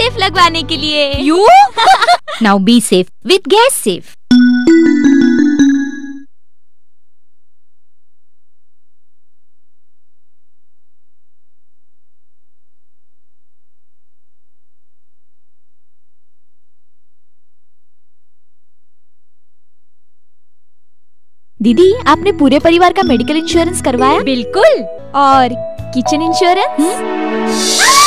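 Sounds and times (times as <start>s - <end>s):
steady electronic tone: 4.3s - 6.2s.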